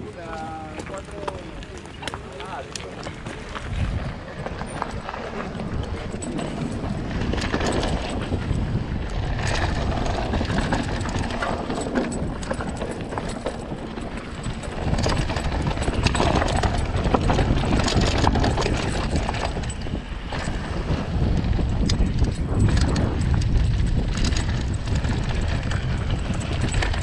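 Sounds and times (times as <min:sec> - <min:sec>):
tyres crunching over gravel: 0:00.0 - 0:21.3
bike rattling: 0:00.0 - 0:27.0
wind on microphone: 0:00.0 - 0:27.0.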